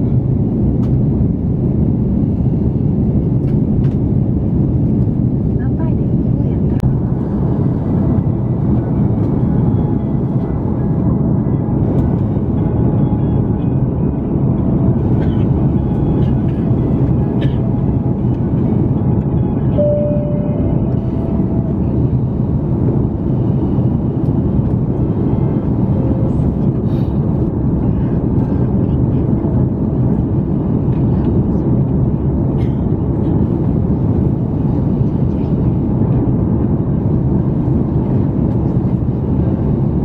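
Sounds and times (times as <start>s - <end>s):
aircraft cabin engine rumble: 0.0s - 40.0s.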